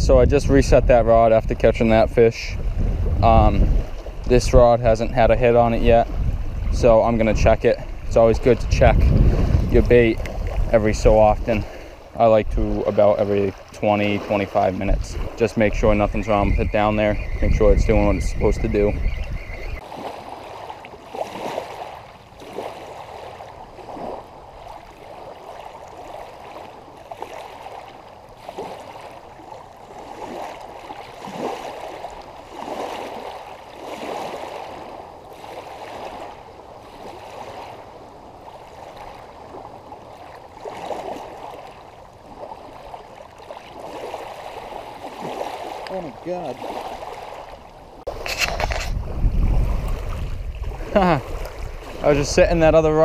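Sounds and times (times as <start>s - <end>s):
waves lapping on pebble shore: 2.6s - 17.4s, 18.8s - 53.0s.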